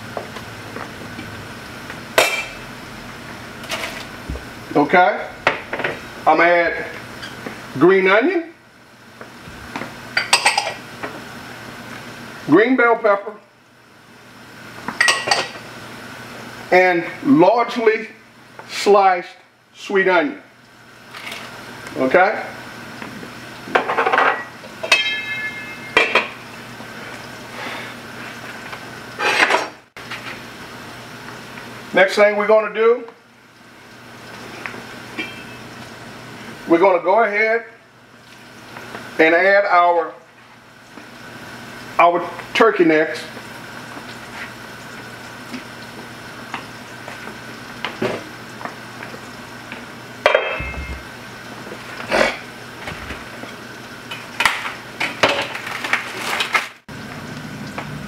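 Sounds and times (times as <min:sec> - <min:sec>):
cookware clattering: 0:15.0 - 0:15.6, 0:23.8 - 0:26.4, 0:35.2 - 0:35.6, 0:50.3 - 0:51.1
cookware clinking: 0:15.0 - 0:15.6, 0:23.8 - 0:26.4, 0:35.2 - 0:35.6, 0:50.2 - 0:51.1
steady hum: 0:21.6 - 0:28.2, 0:50.1 - 0:52.5
metal pot lid clanking: 0:23.8 - 0:26.3, 0:50.3 - 0:51.0.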